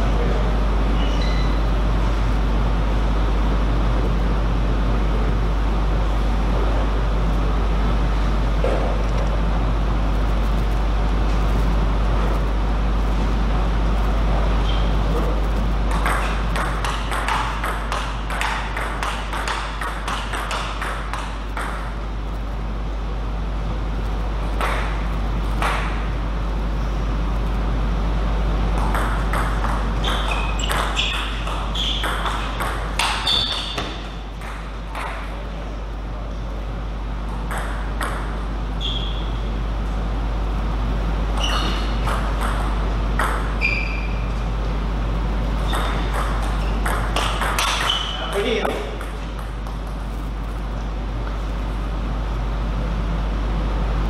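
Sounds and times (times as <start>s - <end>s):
steady low hum: 0.0s - 54.0s
short high squeaks: 1.0s - 1.6s, 14.6s - 15.0s, 30.0s - 34.0s, 38.8s - 39.4s, 41.4s - 42.0s, 43.6s - 44.4s, 47.6s - 48.3s.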